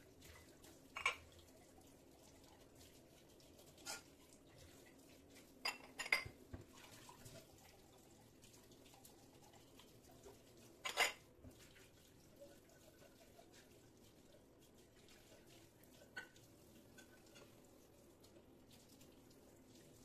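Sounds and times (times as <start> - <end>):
faint running tap water: 0.0 - 20.0
dish clinking: 5.6 - 6.4, 10.8 - 11.2.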